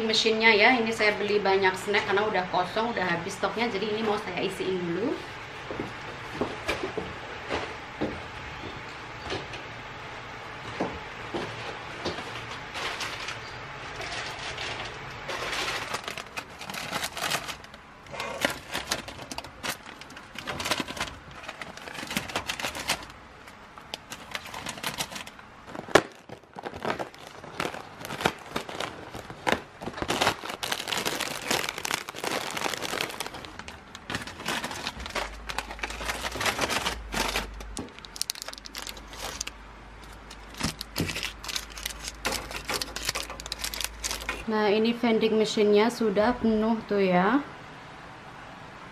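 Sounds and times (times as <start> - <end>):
plastic wrappers crinkling: 12.5 - 44.5.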